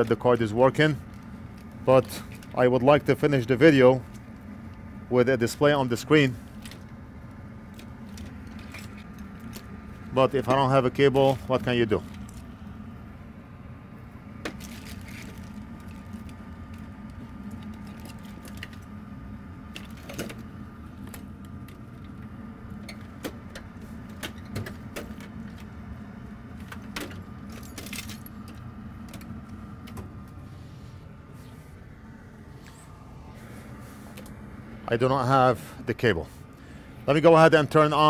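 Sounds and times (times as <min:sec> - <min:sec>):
steady low hum: 0:00.0 - 0:38.0
small parts clattering: 0:26.6 - 0:29.3.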